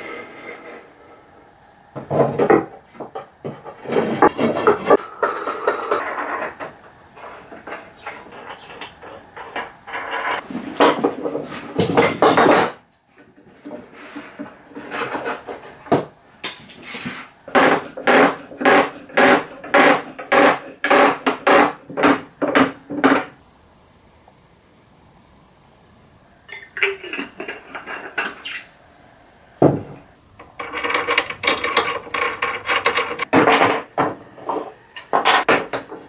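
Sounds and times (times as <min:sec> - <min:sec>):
clamps clattering on wooden boards: 0:02.0 - 0:12.8, 0:17.5 - 0:23.3, 0:29.6 - 0:36.0.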